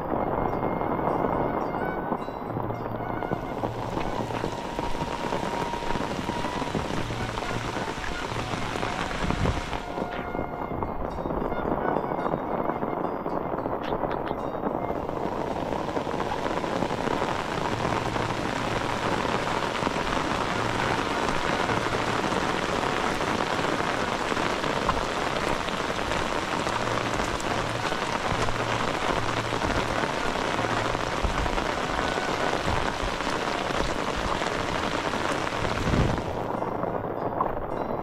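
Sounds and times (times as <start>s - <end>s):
heavy rain: 0.0s - 38.0s.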